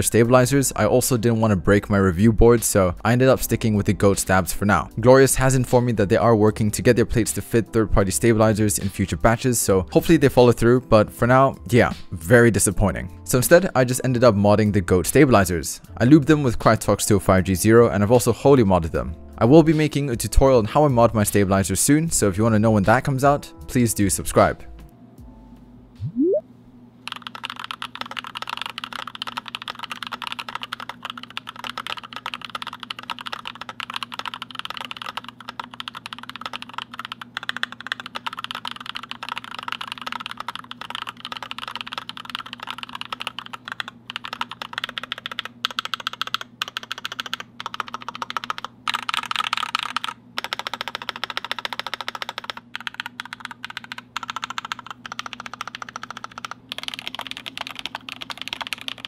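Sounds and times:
mechanical keyboard typing: 27.1 - 59.0.

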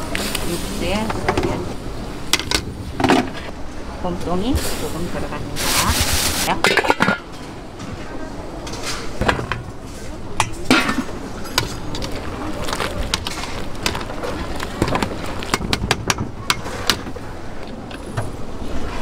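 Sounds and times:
metal pots and utensils clanking: 4.6 - 7.9, 8.6 - 17.2.

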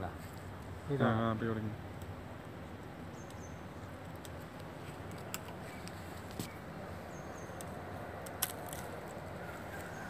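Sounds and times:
faint outdoor background noise: 0.0 - 10.0
high bird chirp: 3.1 - 3.7, 5.6 - 7.6
branches snapping and clicking: 4.0 - 6.6, 7.5 - 10.0.

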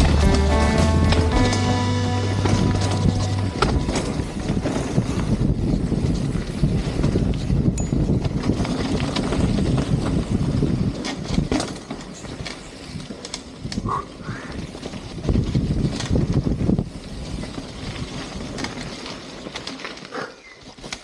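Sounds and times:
mountain bike rumbling and rattling: 0.0 - 21.0
wind rushing over microphone: 2.4 - 11.7, 12.3 - 18.9.

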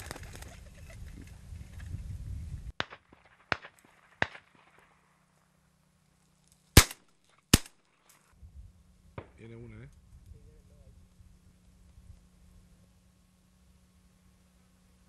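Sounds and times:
shotgun firing: 2.8 - 4.9, 6.8 - 7.8
faint gunshots: 2.8 - 5.0, 6.8 - 7.8, 9.2 - 9.5.

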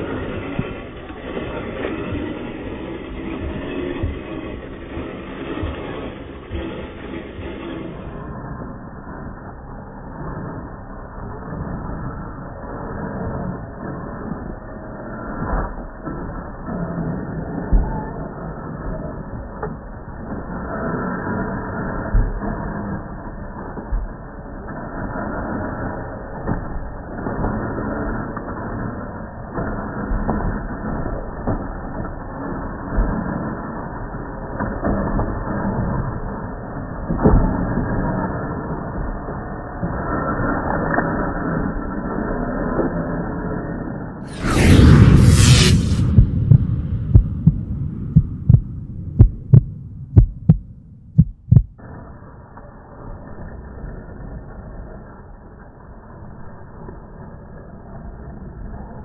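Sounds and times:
steady low hum: 0.0 - 42.6, 44.2 - 52.5
heartbeat thuds: 46.1 - 51.8.

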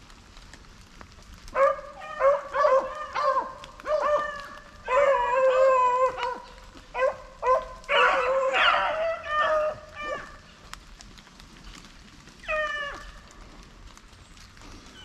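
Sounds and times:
dogs baying: 1.5 - 10.4.

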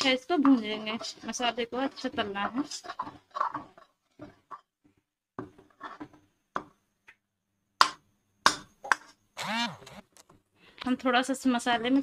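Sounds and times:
metal spoon scraping a pan: 0.0 - 4.7, 5.4 - 6.2.

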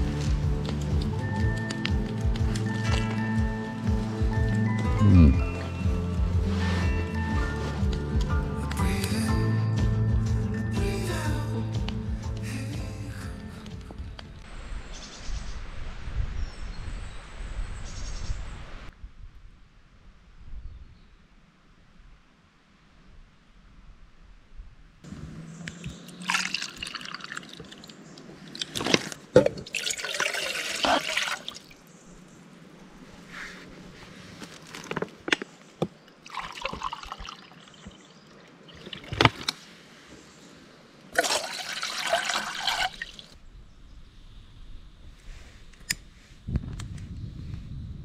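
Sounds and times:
water bursts: 25.8 - 31.9, 36.2 - 39.7, 41.1 - 43.4.

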